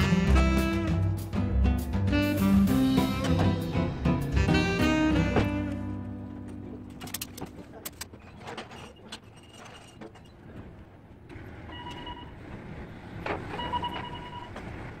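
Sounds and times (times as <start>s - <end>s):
pallet jack wheels rolling: 6.4s - 15.0s
short squeaks: 7.9s - 10.5s.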